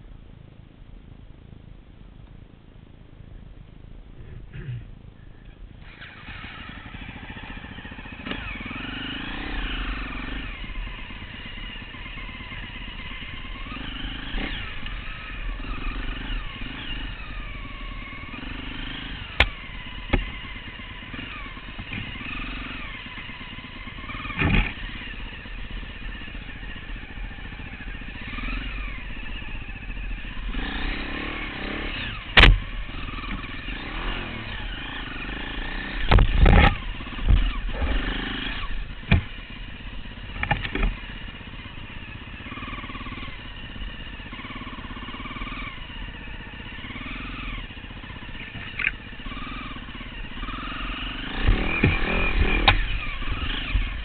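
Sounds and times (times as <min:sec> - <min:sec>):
motorcycle engine revving: 0:04.2 - 0:54.0
bike knocking over ground: 0:32.3 - 0:32.7, 0:39.0 - 0:39.4.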